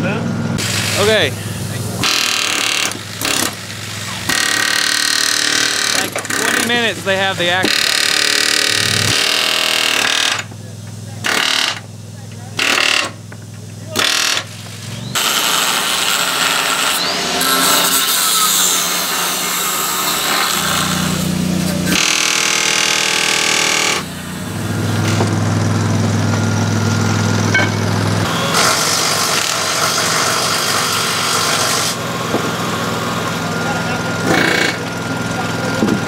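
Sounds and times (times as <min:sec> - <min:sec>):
impact wrench bursts: 0:00.6 - 0:10.6, 0:11.2 - 0:11.9, 0:12.5 - 0:35.9.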